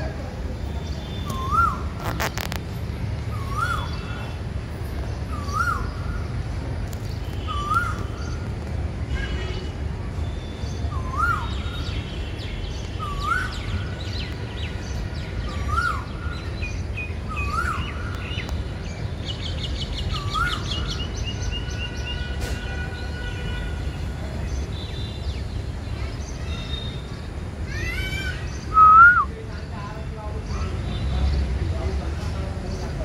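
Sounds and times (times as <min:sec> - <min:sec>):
birds chirping: 0:00.0 - 0:08.6, 0:09.3 - 0:33.0
bird whistling: 0:01.3 - 0:01.8, 0:03.3 - 0:04.0, 0:10.9 - 0:11.7, 0:28.7 - 0:29.3.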